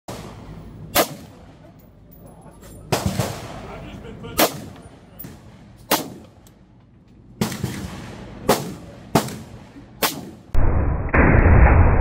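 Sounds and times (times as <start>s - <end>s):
rifle shots with echo: 0.1s - 1.6s, 2.9s - 3.6s, 4.4s - 6.3s, 7.4s - 12.0s.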